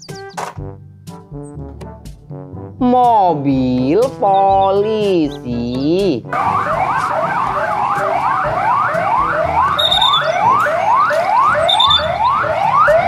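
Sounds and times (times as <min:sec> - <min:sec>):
police sirens whooping: 0:06.4 - 0:13.0.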